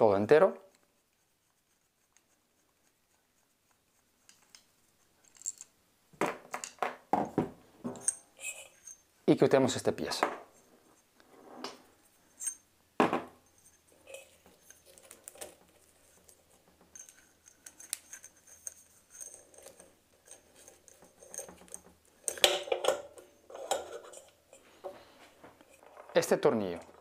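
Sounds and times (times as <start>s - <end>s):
clatter of parts: 25.7s - 27.0s.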